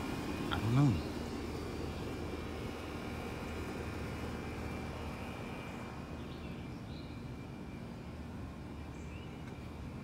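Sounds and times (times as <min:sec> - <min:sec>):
faint bird chirps: 0:04.8 - 0:09.9.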